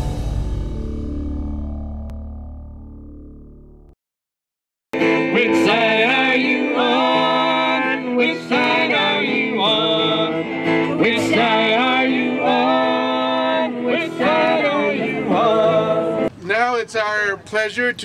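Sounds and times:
country song with plucked strings: 5.0 - 16.3.

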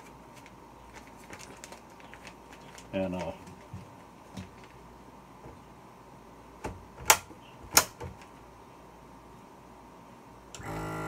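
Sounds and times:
electric motor hum: 10.6 - 11.0.

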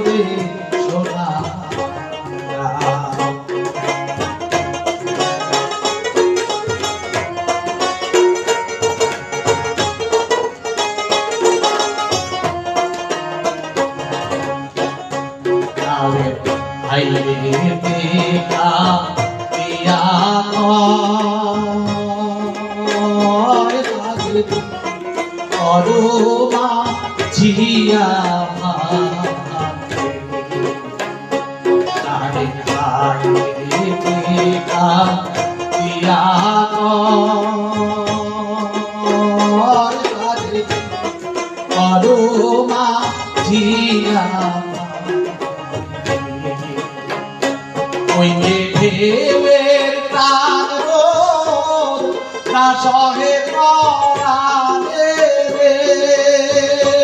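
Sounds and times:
man singing: 0.0 - 4.2, 15.6 - 30.9, 31.8 - 47.1, 47.9 - 57.0
harmonium: 0.0 - 57.0
plucked lute: 0.0 - 57.0
tabla: 0.0 - 57.0.

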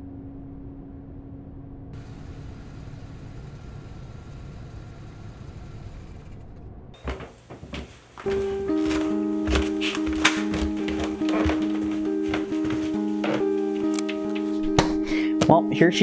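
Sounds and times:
music: 8.2 - 16.0.

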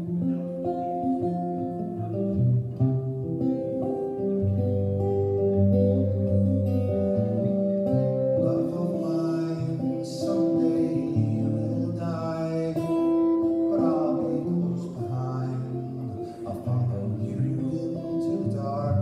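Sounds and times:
guitar strummed chords: 0.0 - 19.0.

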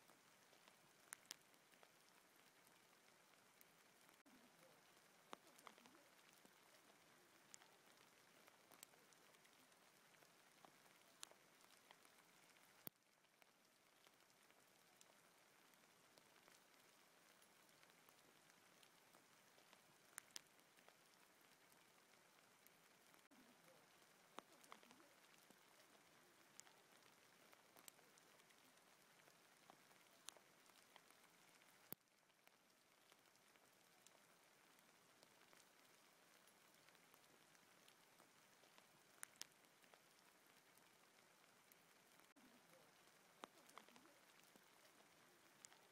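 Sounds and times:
hail hissing on forest floor: 0.0 - 12.9
hailstones ticking: 0.4 - 45.9.

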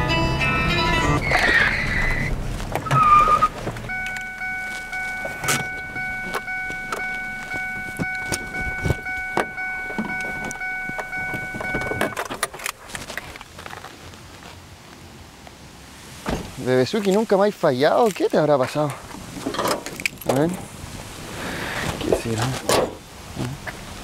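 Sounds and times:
steady high tone: 3.9 - 12.2
car keys jangling in ignition: 3.9 - 12.8.

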